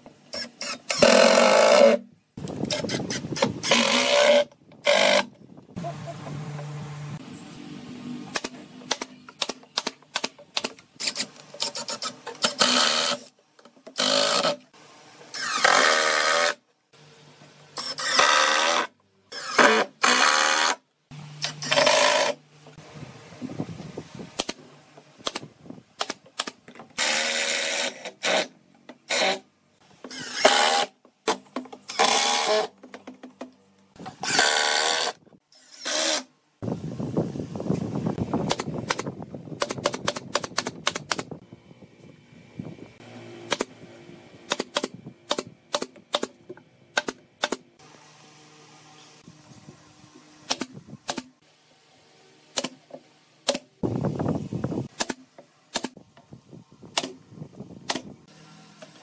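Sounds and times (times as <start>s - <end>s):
cordless drill driving screws: 15.3s - 16.6s, 17.8s - 20.8s, 30.1s - 30.9s, 34.2s - 36.3s
nail gun firing into wood: 25.2s - 28.5s, 38.4s - 41.3s, 44.5s - 47.6s, 50.5s - 51.3s, 54.9s - 56.0s, 57.8s - 58.1s.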